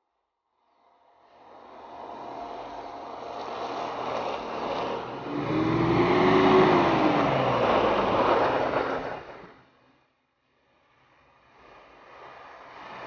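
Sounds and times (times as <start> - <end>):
off-road vehicle engine: 1.8 - 9.8
tyres on snow and gravel: 2.2 - 9.6.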